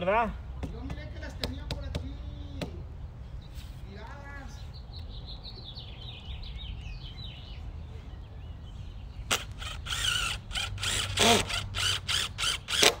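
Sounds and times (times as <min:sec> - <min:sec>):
birds chirping faintly: 0:00.0 - 0:10.3
cordless drill driving screws into wood: 0:09.3 - 0:13.0.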